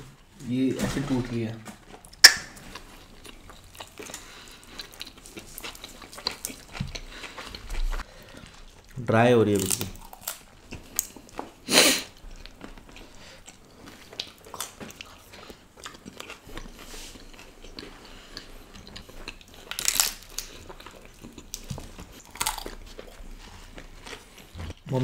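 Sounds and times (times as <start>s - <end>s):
chewing and biting food: 1.9s - 25.0s
wet mouth smacks: 2.2s - 2.6s.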